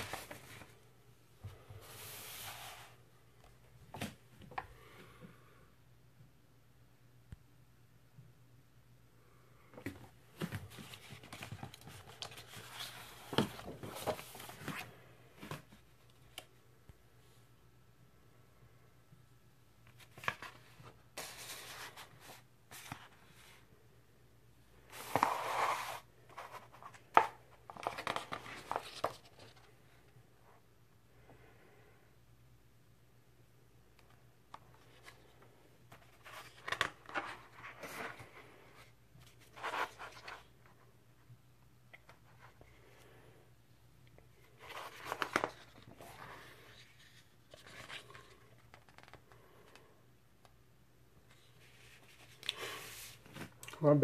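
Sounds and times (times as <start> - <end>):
vinyl record and paper sleeve rustling: 24.8 - 29.7, 44.4 - 49.3.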